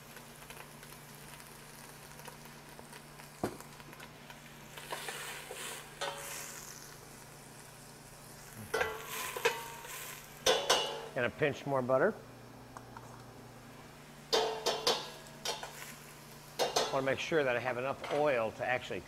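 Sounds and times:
vegetables sizzling in butter: 0.0s - 11.2s, 13.7s - 19.0s
utensil clinking against pot: 10.4s - 11.1s, 14.3s - 15.7s, 16.6s - 17.0s.

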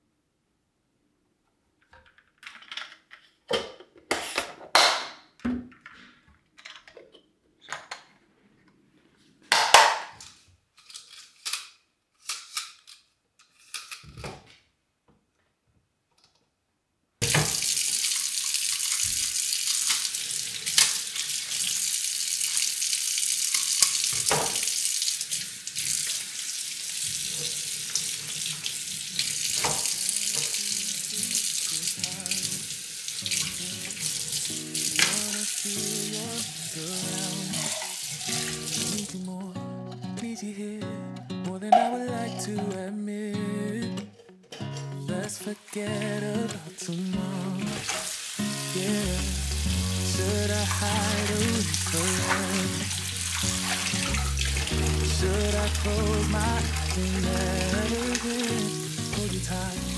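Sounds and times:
kitchen items clicking and knocking: 1.9s - 6.0s
faucet running water into sink: 17.2s - 39.1s, 47.7s - 59.9s.

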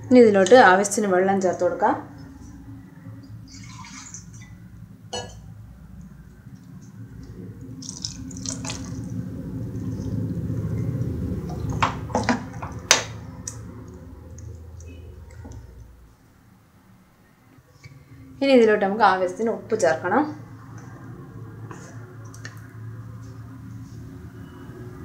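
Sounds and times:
water pouring into a pot: 3.4s - 4.5s, 6.6s - 13.0s.

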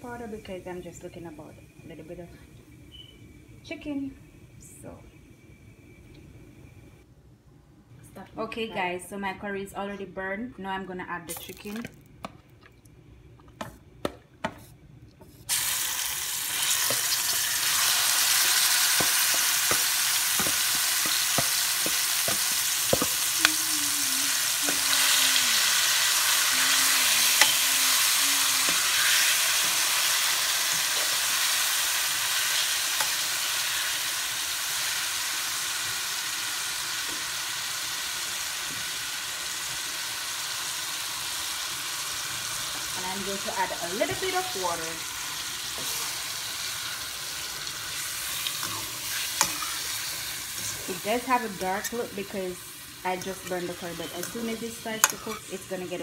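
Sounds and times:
chicken frying sizzle: 15.5s - 56.0s.

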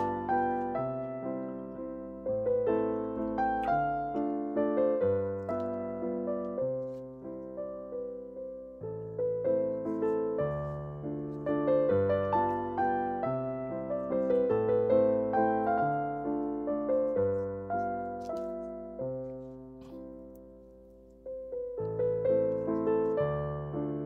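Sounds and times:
gentle piano melody: 0.0s - 24.0s.

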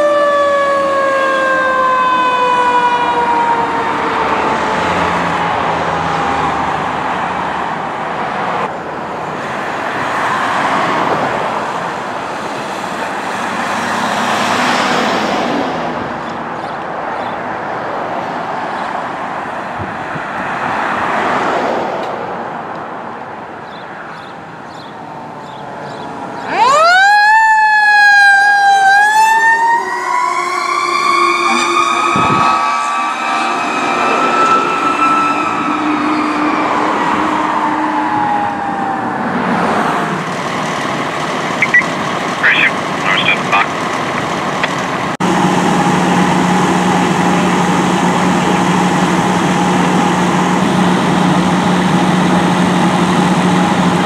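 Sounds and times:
fire truck sirens: 0.0s - 16.4s, 24.4s - 54.0s
road and engine noise: 0.0s - 54.0s.

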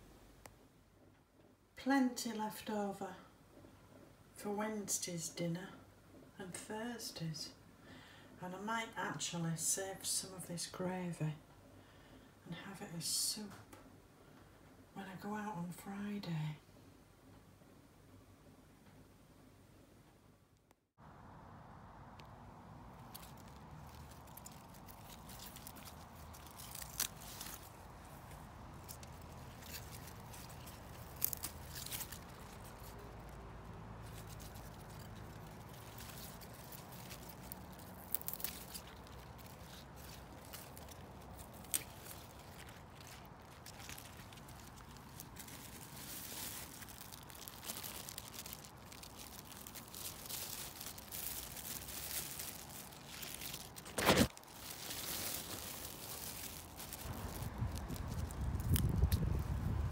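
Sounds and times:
sharp plastic crackle: 22.0s - 59.9s
salad leaves rustling and snapping: 22.1s - 59.9s.

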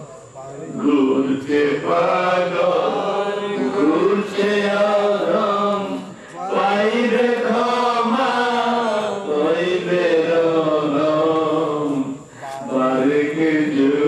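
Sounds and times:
man chanting: 0.0s - 14.0s.

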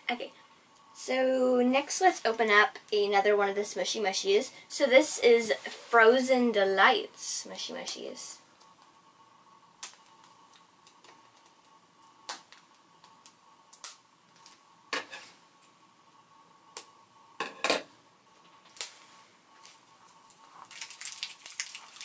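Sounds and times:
plastic shrink-wrap crinkling: 18.6s - 22.0s.

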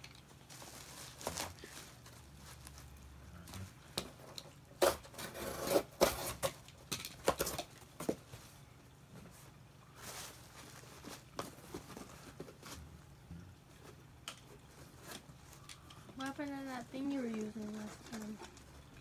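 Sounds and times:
bubble wrap crinkling: 0.0s - 6.6s, 9.3s - 13.0s, 13.8s - 19.0s
cardboard rustling: 0.0s - 6.6s, 9.2s - 13.0s.

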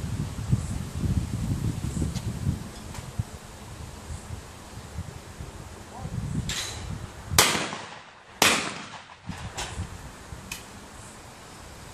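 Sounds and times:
shotgun shots: 7.4s - 9.4s.

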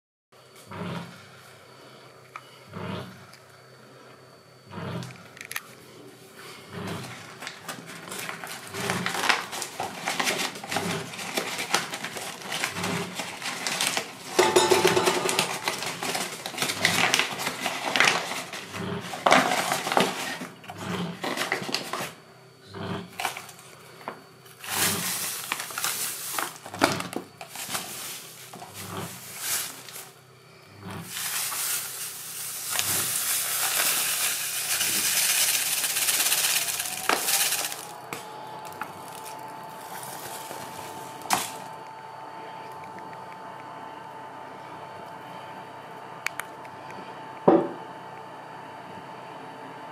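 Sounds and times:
paper bag rustling: 7.0s - 22.2s, 24.6s - 30.2s, 31.0s - 41.8s
steel pots and utensils clinking: 14.3s - 15.7s
sugar pouring into pot: 31.1s - 38.0s.

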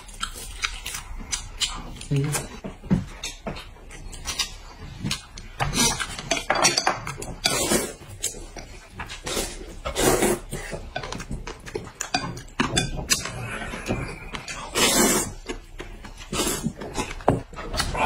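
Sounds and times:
noodles slurped and chewed: 3.2s - 18.0s.

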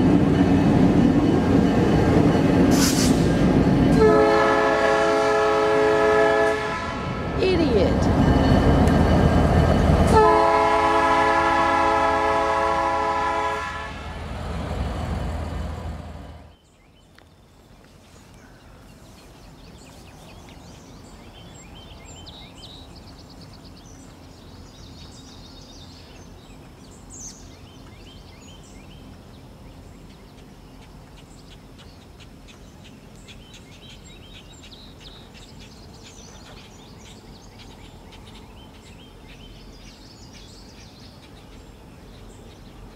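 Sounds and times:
distant locomotive rumble: 0.0s - 42.9s
train rumbling: 0.0s - 42.9s
locomotive horn chord: 3.9s - 7.4s, 10.0s - 14.2s.

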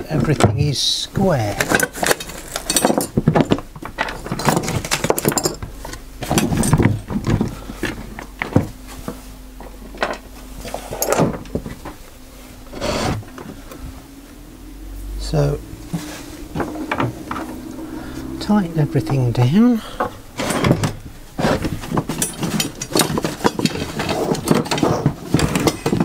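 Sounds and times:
faint steady hum: 0.0s - 26.0s
wooden workpieces clattering on workbench: 20.0s - 26.0s.

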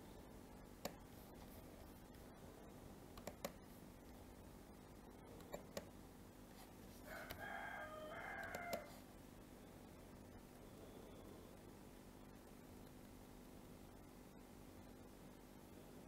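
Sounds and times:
computer mouse clicks: 0.8s - 1.0s, 3.1s - 3.6s, 5.4s - 5.9s, 8.4s - 8.9s.

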